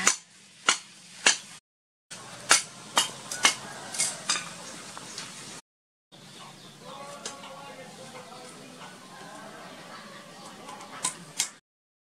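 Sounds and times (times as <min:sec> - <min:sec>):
metal tongs clinking on pot: 0:02.5 - 0:04.6, 0:10.4 - 0:11.6.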